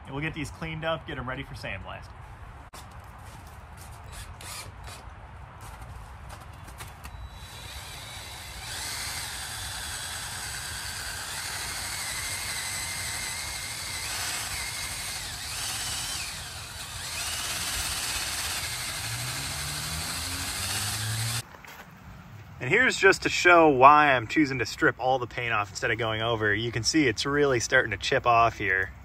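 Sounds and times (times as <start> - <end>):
cordless drill motor whine: 4.1 - 5.0, 7.1 - 21.4.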